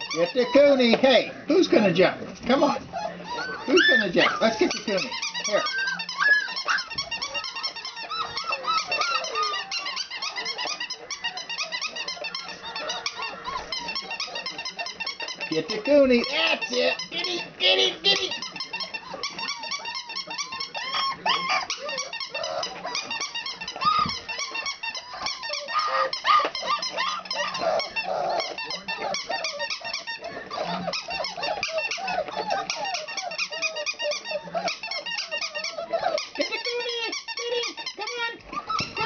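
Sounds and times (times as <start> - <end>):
puppies growling and yipping: 0.0 - 39.0
puppies whining and squealing: 0.0 - 39.0.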